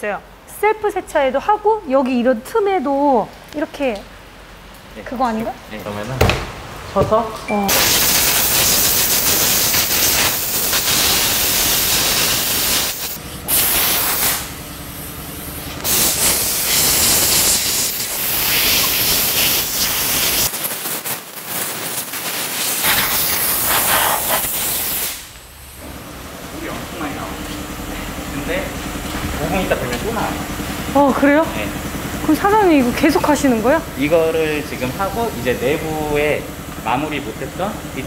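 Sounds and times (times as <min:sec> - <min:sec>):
compressed air blow gun hissing: 0:07.7 - 0:20.5, 0:21.6 - 0:25.3.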